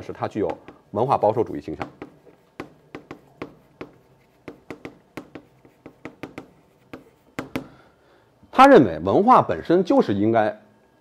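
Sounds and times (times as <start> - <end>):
chalk writing on blackboard: 0.4 - 7.8.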